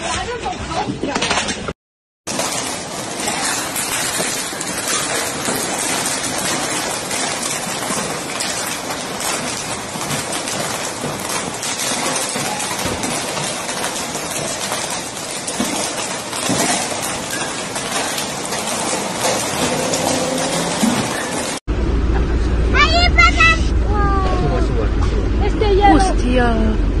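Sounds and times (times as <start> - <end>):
hailstones pelting down: 2.3 - 21.6.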